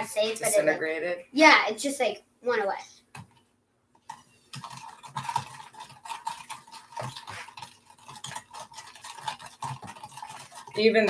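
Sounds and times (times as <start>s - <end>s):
spoon stirring in a cup: 4.0s - 11.0s.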